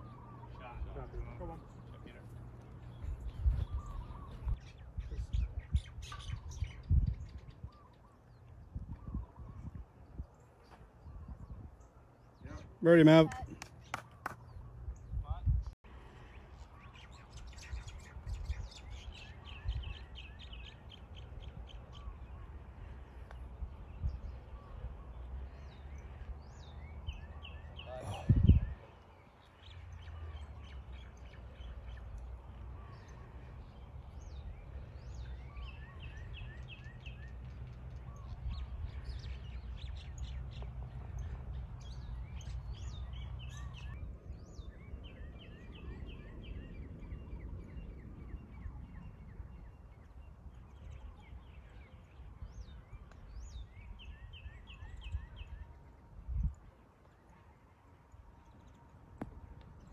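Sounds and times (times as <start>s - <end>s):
birds chirping trills: 0.0s - 59.9s.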